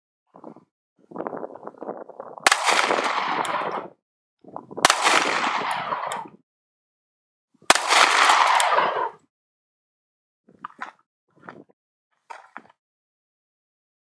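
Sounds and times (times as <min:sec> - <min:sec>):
gunshots with rumbling tail: 0:02.4 - 0:04.0, 0:04.8 - 0:06.4, 0:07.7 - 0:09.2.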